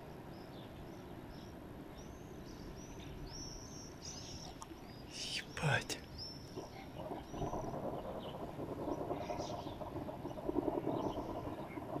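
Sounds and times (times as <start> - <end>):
small birds chirping: 0.0 - 12.0
distant explosion rumble: 6.4 - 12.0.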